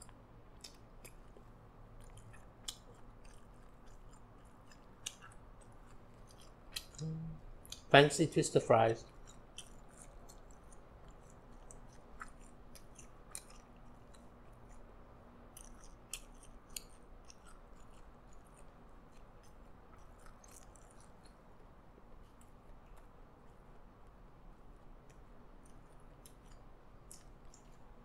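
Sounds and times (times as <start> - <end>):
mouth clicks and smacks: 0.0 - 7.9, 9.1 - 14.9, 15.5 - 21.5
person chewing: 0.0 - 7.9, 9.0 - 28.0.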